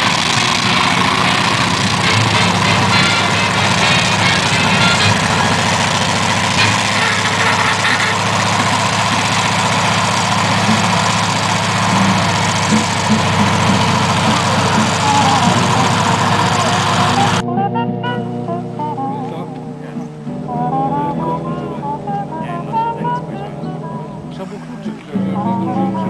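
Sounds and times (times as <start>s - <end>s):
tank engine running: 0.0s - 17.4s.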